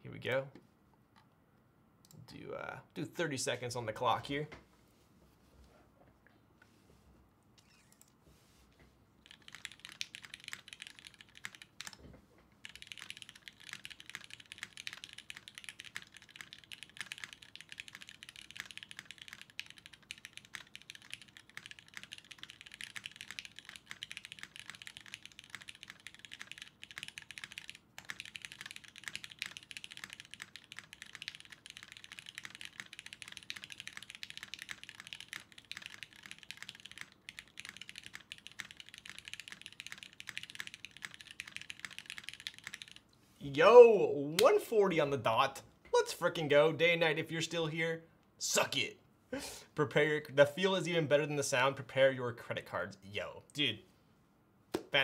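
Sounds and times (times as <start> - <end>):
fast mechanical keyboard typing: 9.2 - 12.0, 12.6 - 43.0.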